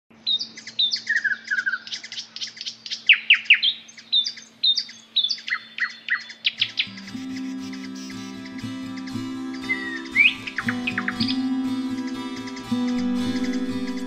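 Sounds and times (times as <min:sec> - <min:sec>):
songbird chirping and whistling: 0:00.2 - 0:14.0
music: 0:06.6 - 0:14.0.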